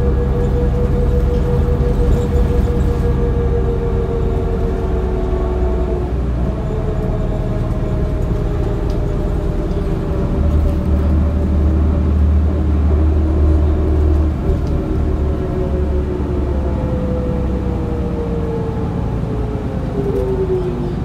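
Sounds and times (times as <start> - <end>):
bus engine running: 0.0 - 21.0
low drone: 0.0 - 21.0.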